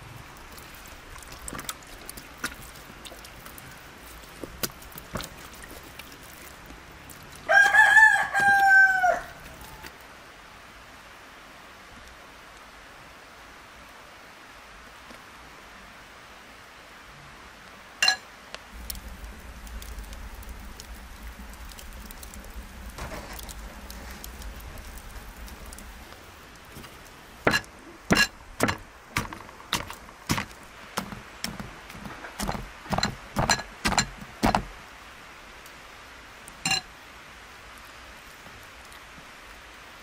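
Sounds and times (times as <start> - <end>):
wood fire rumbling and crackling: 0.0 - 10.0, 18.6 - 36.6.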